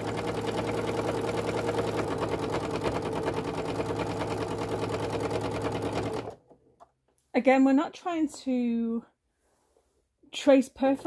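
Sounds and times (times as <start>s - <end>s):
sewing machine motor hum: 0.0s - 6.6s
sewing machine needle clatter: 0.0s - 6.8s.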